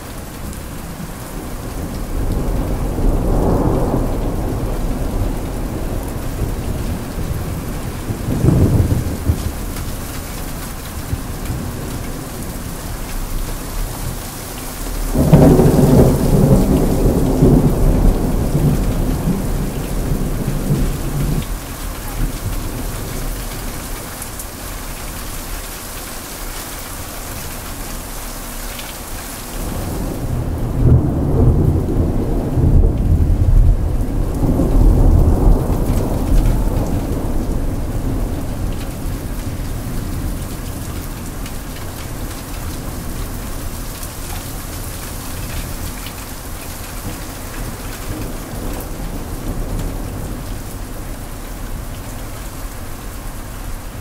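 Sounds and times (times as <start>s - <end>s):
thunder rumbling: 0.0s - 24.3s, 29.5s - 54.0s
heavy rain: 0.0s - 54.0s.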